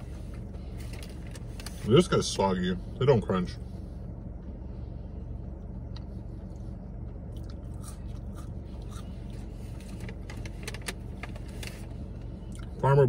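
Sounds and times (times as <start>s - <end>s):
steady low hum: 0.0s - 13.0s
man chewing food: 5.5s - 10.8s.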